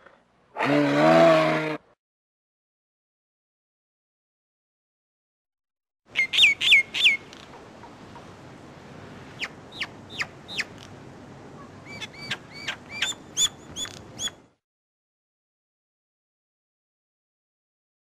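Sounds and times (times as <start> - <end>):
myna whistling calls: 6.2 - 7.2, 9.4 - 10.8, 11.6 - 14.4.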